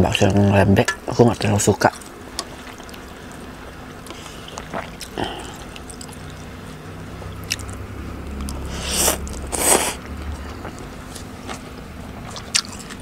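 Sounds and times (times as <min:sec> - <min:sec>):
soft chewing: 0:01.8 - 0:13.0
slurping noodles: 0:08.5 - 0:10.8.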